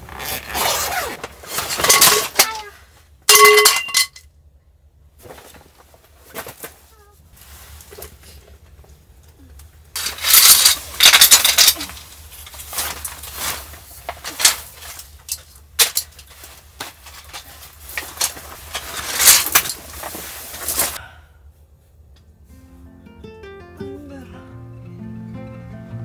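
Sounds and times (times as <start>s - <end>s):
fabric rustling: 5.2s - 8.7s, 10.0s - 15.2s, 16.1s - 21.0s.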